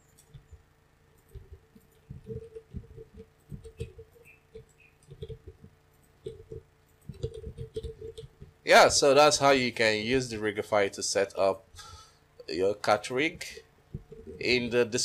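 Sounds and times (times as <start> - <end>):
computer mouse clicking: 0.0 - 0.6, 1.2 - 8.6
faint steady hum: 0.0 - 15.0.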